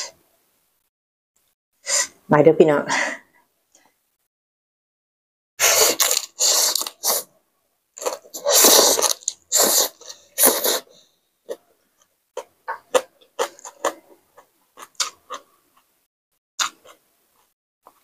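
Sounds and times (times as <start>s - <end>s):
noodle slurping: 5.6s - 7.3s, 8.0s - 11.1s
wet chewing and lip smacks: 12.7s - 15.9s.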